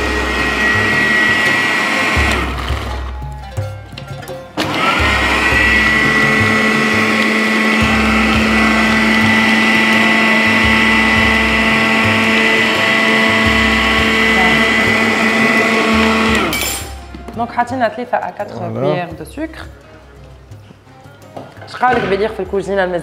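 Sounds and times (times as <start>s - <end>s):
electric food chopper grinding: 0.0s - 3.2s, 4.6s - 17.1s.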